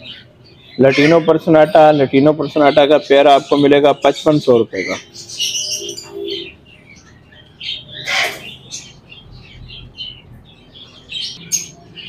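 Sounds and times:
loud bird squawk: 0.0s - 3.7s, 4.7s - 9.0s
lovebirds chirping: 0.0s - 12.0s.

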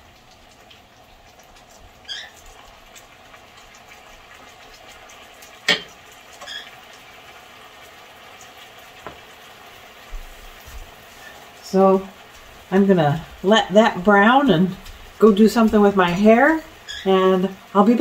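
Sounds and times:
chicken sizzling in a skillet: 0.0s - 18.0s
short high squeaks: 6.4s - 6.8s.

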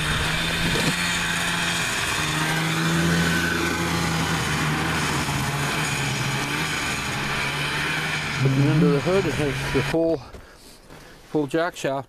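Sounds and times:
snowmobile engine running: 0.0s - 10.0s.

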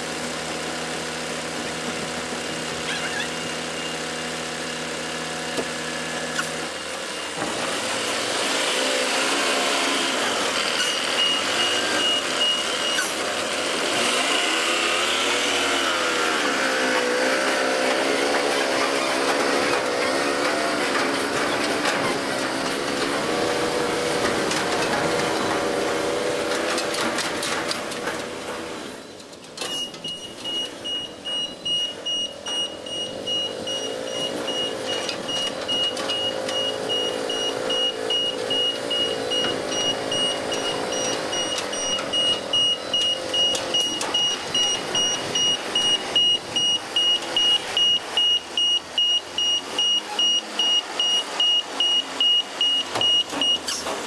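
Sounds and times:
diesel truck engine running: 0.0s - 29.2s, 30.0s - 54.0s
reversing alarm beeping: 10.8s - 13.1s, 29.6s - 53.8s.

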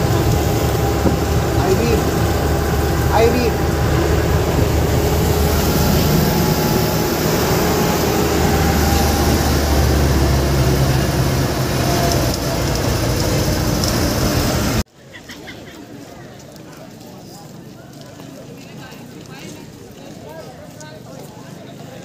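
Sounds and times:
bus engine rumble: 0.0s - 14.9s
wind and road noise: 0.0s - 14.9s.

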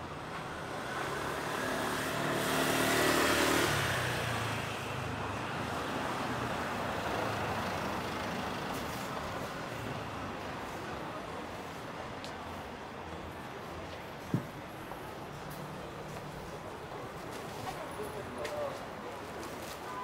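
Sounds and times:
background street hum: 0.0s - 20.0s
vehicle driving past: 0.6s - 4.9s.

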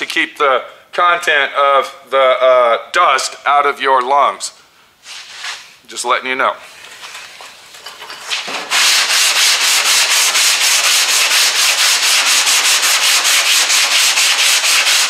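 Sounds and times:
sandpaper scraping body filler: 5.0s - 5.8s, 8.2s - 15.0s.

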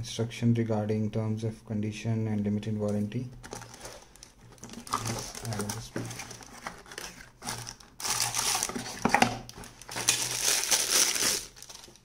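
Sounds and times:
cardboard packaging handling: 3.4s - 12.0s
plastic bag crinkling: 3.4s - 12.0s.

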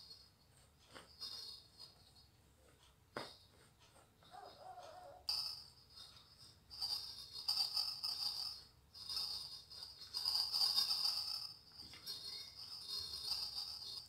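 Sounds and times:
spatula scraping a dish: 6.0s - 14.0s.

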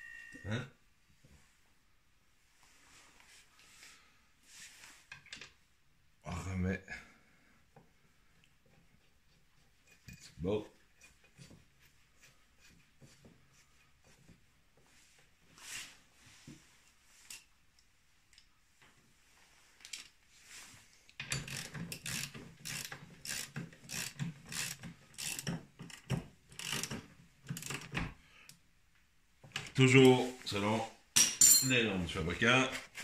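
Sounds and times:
ratchet wrench clicking: 21.4s - 26.9s.

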